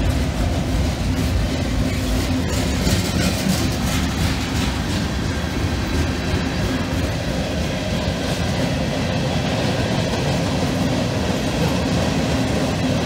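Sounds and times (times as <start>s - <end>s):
freight train cars rolling: 0.0s - 13.0s.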